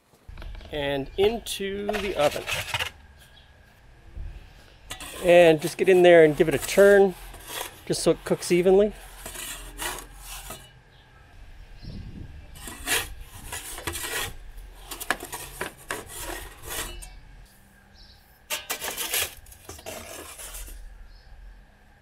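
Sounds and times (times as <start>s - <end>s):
metal peel scraping oven floor: 1.8s - 3.0s, 4.9s - 10.7s, 12.6s - 17.2s, 18.5s - 20.9s.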